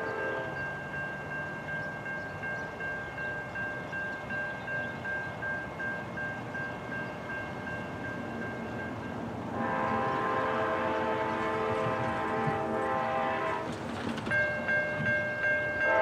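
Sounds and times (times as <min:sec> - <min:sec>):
train air horn blast: 0:00.0 - 0:00.6, 0:09.5 - 0:13.7
crossing warning bell dinging: 0:00.0 - 0:16.0.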